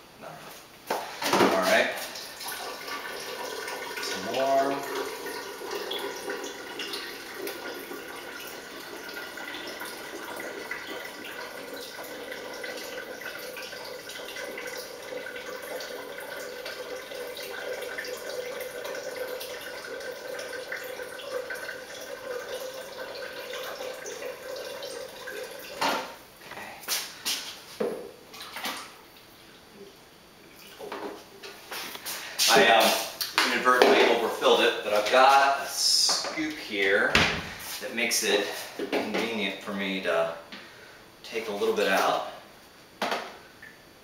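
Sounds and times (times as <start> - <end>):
water running into plastic jug: 1.2 - 26.2.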